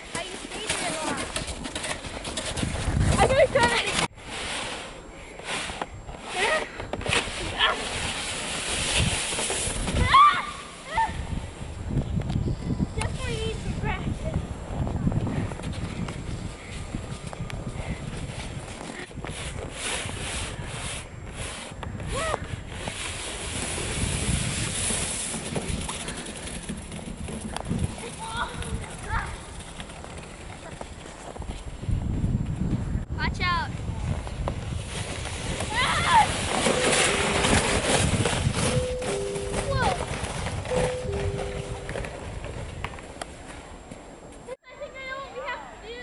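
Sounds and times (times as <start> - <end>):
snowboard scraping over snow: 0.2 - 10.6, 18.1 - 32.2, 33.8 - 43.8
wind buffeting microphone: 2.3 - 4.2, 10.9 - 44.3.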